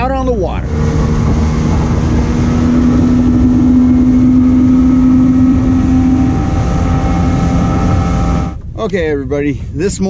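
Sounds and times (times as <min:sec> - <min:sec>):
water noise: 0:00.0 - 0:08.8
boat motor running: 0:00.0 - 0:08.9
rushing wind: 0:00.0 - 0:10.0.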